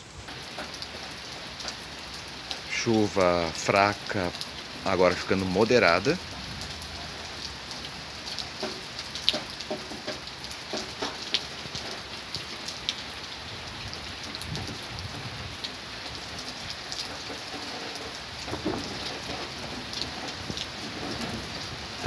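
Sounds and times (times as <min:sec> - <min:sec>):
rain falling: 0:00.0 - 0:22.0
raindrops ticking on surfaces: 0:00.0 - 0:22.0
distant thunder rumble: 0:13.6 - 0:16.4, 0:18.4 - 0:22.0.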